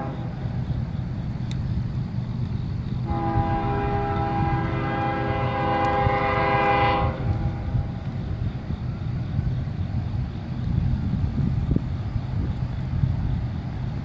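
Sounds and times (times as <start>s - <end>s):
locomotive air horn blast: 0.0s - 0.4s, 3.0s - 7.7s
steady low rumble: 0.0s - 14.0s.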